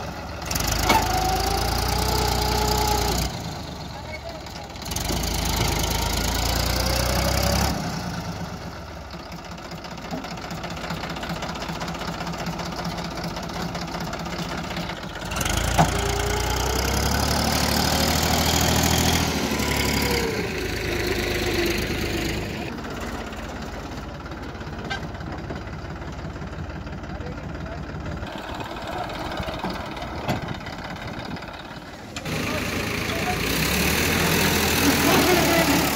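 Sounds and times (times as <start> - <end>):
diesel tractor engines running: 0.0 - 35.9.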